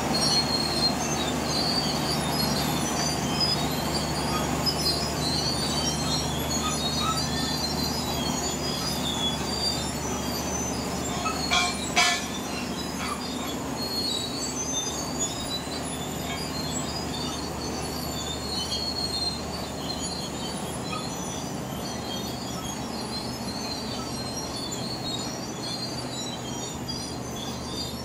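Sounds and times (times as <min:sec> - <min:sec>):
diesel engine running: 0:00.0 - 0:28.0
steel tracks squeaking and clattering: 0:00.0 - 0:28.0
sharp metallic clanks: 0:11.0 - 0:13.7.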